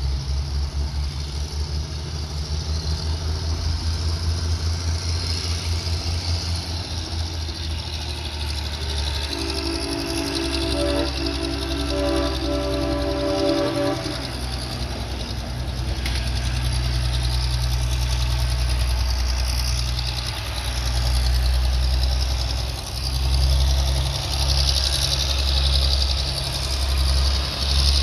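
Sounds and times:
diesel locomotive engine rumbling: 0:00.0 - 0:28.0
horn chord: 0:09.2 - 0:15.1.

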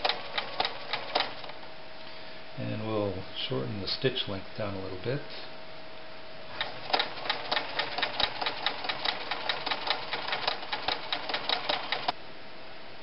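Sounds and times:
sewing machine stitching: 0:00.0 - 0:01.5, 0:06.5 - 0:12.1.

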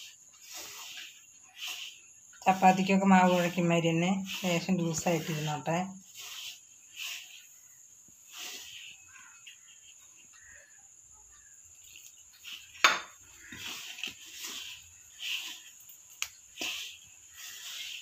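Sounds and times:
hand rubbing flour in metal bowl: 0:00.0 - 0:18.0.

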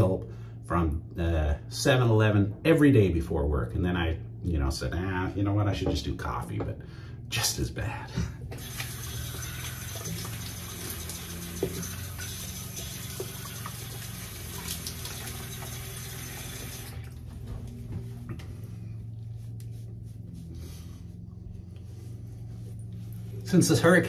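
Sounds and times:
tap running into a sink: 0:08.5 - 0:17.2
water splashing: 0:08.6 - 0:17.4.

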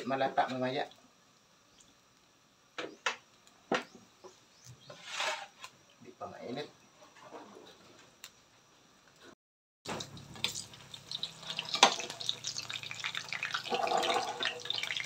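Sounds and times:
bananas frying in oil: 0:00.0 - 0:06.7, 0:09.9 - 0:15.0.

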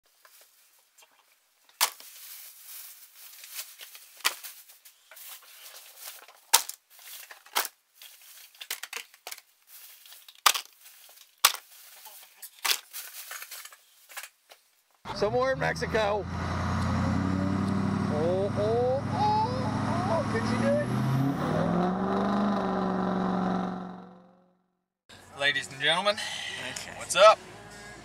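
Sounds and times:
paper and plastic crinkling: 0:01.7 - 0:14.8.

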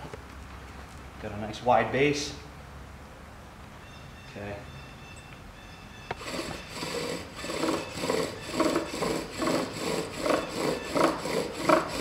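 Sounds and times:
bow drill rhythmic rasping: 0:06.1 - 0:12.0.

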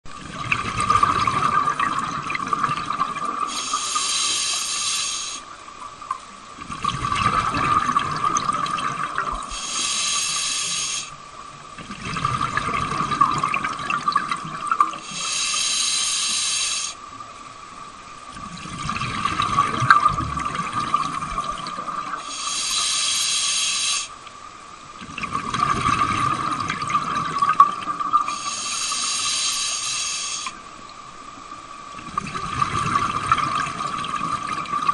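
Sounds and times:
exhaled bubbles rushing: 0:00.1 - 0:03.5, 0:06.6 - 0:09.6, 0:11.8 - 0:15.0, 0:18.3 - 0:22.2, 0:25.0 - 0:28.3, 0:32.0 - 0:34.9
faint steady whine: 0:00.1 - 0:34.9
regulator hiss on inhale: 0:03.4 - 0:05.6, 0:09.4 - 0:11.2, 0:15.0 - 0:17.1, 0:22.2 - 0:24.2, 0:28.2 - 0:30.7.

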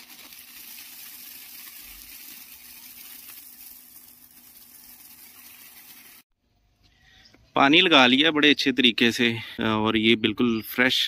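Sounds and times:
hose water spraying: 0:00.0 - 0:06.3.

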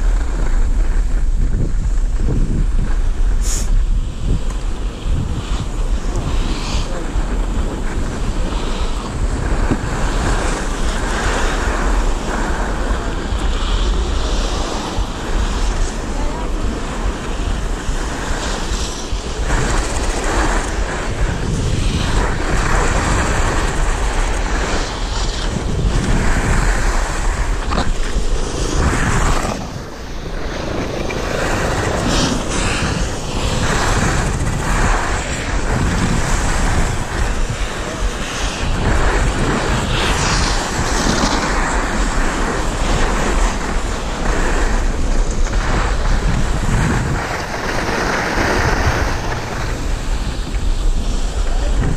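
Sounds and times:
skis scraping on packed snow: 0:00.0 - 0:51.9
wind rushing over microphone: 0:00.0 - 0:51.9.

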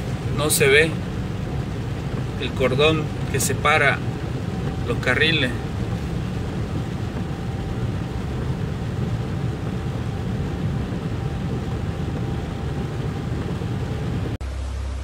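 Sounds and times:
car engine and tyres rumbling: 0:00.0 - 0:15.0
constant hiss: 0:00.0 - 0:15.0.

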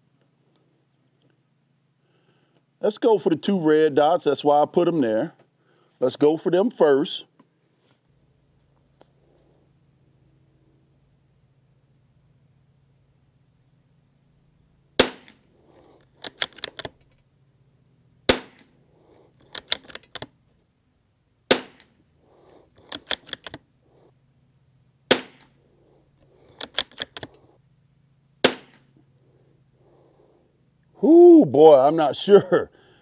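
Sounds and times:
rifle shots: 0:15.0 - 0:15.5, 0:18.3 - 0:18.8, 0:21.5 - 0:22.0, 0:25.1 - 0:25.6, 0:28.4 - 0:28.9
rifle bolt clicking: 0:16.2 - 0:17.2, 0:19.4 - 0:20.3, 0:22.8 - 0:23.6, 0:26.5 - 0:27.4.

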